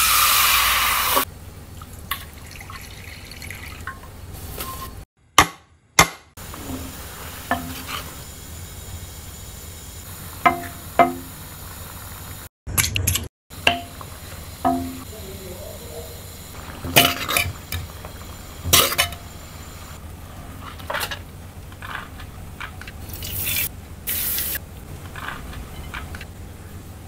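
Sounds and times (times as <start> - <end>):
spoon clinking on a pan: 14.7 - 15.1.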